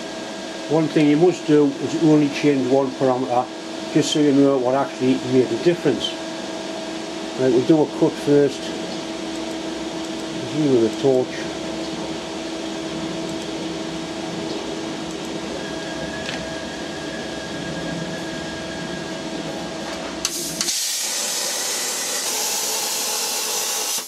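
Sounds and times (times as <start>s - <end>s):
machine hum: 0.0s - 24.0s
plasma torch hissing: 20.2s - 24.0s.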